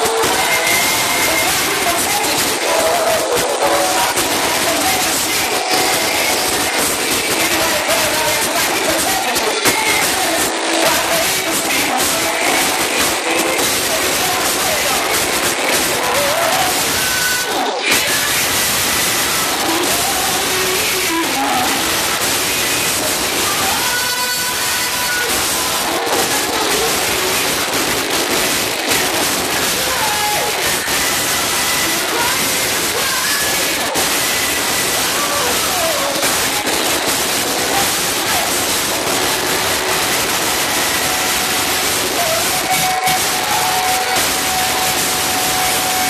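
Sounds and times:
crowd noise: 0.0s - 46.0s
hissing distorted amplified sound: 0.0s - 46.0s
person singing: 0.0s - 46.0s
band playing: 36.3s - 46.0s.

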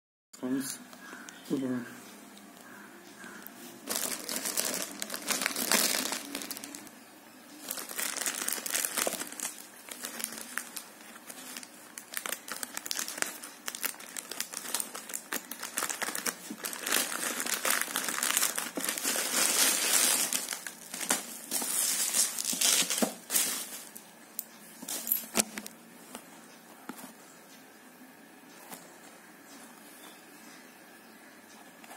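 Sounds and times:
bubble wrap rustling: 2.6s - 6.9s, 7.5s - 24.0s
plastic bag crinkling and tearing: 3.2s - 6.9s, 7.6s - 24.0s.

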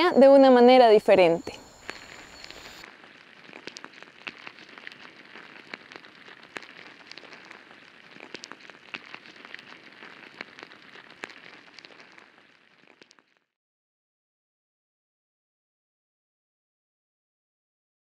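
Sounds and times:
soft even hiss: 0.9s - 13.1s.

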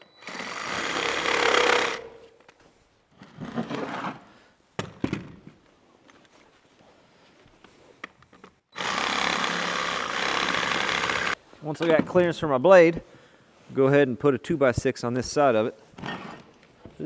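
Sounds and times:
reciprocating saw cutting wood: 8.8s - 11.4s.

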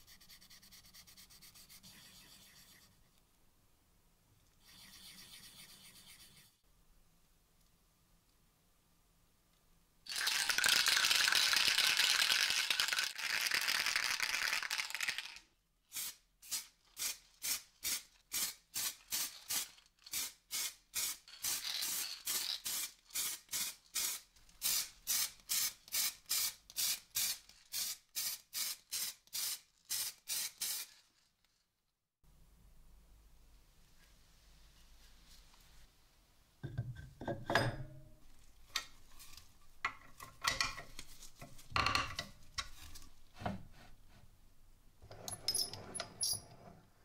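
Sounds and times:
aerosol spray can hissing: 15.9s - 30.9s.

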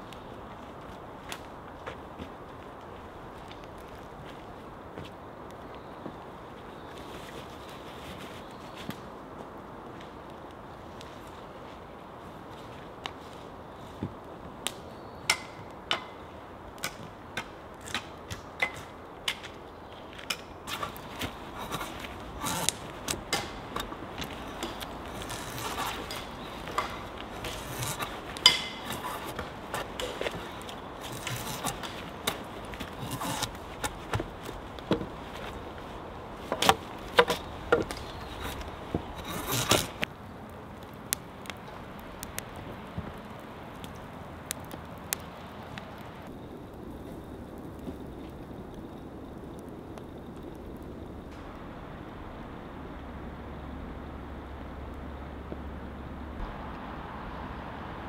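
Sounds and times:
wood scraping: 20.2s - 40.1s.

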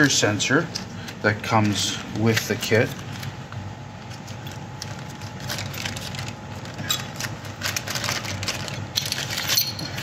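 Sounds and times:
plastic bag crinkling: 4.2s - 9.9s.

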